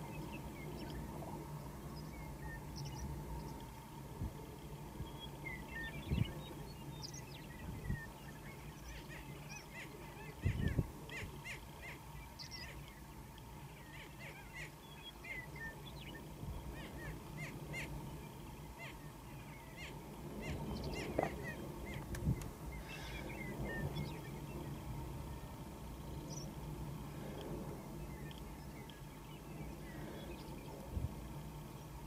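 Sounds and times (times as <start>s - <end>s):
birds chirping: 0.0s - 32.0s.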